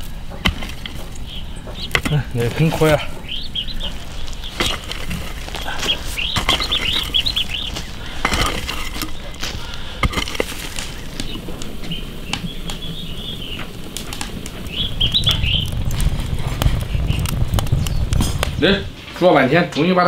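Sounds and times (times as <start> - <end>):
small bird chirping: 0.9 - 10.0, 10.6 - 18.9
pickaxe striking dry earth: 4.4 - 11.4.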